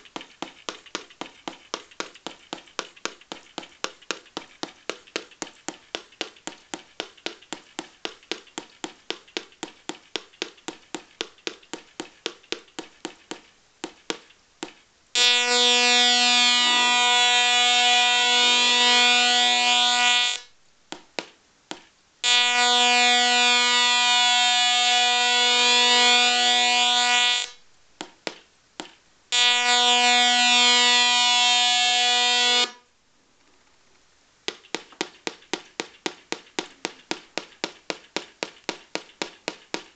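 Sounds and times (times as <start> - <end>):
buzzy electronic tones: 15.2 - 20.4.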